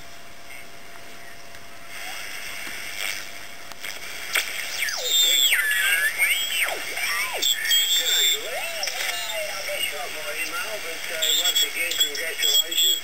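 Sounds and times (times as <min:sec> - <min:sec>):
radio band hiss: 0:00.0 - 0:13.0
radio squeals: 0:04.6 - 0:13.0
garbled radio voice tones: 0:04.7 - 0:13.0.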